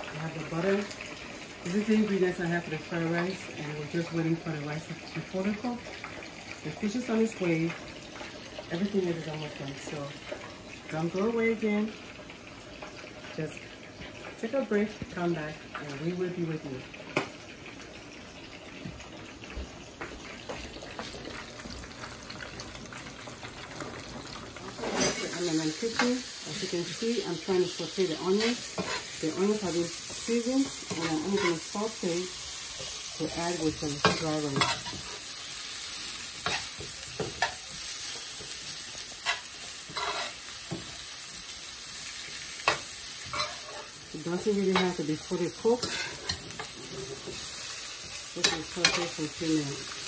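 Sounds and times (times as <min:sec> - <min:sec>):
fish sizzling in hot oil: 0:00.0 - 0:50.0
metal spatula scraping a pan: 0:24.7 - 0:26.2, 0:28.3 - 0:31.8, 0:33.8 - 0:35.3, 0:39.2 - 0:40.5, 0:42.6 - 0:44.0, 0:45.6 - 0:47.5.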